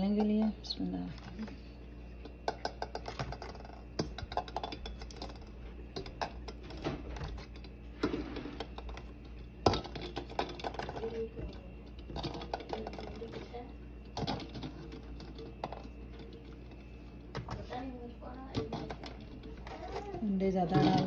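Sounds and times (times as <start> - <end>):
eggshells clicking against metal pot: 0.0 - 0.7, 2.2 - 7.8, 8.6 - 21.0.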